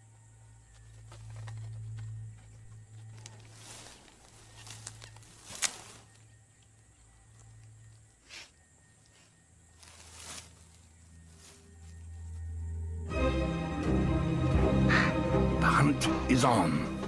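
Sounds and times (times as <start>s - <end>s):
low steady hum: 0.0s - 13.1s
dry grass rustling and crackling: 0.6s - 12.8s
stems snapping: 1.1s - 7.8s.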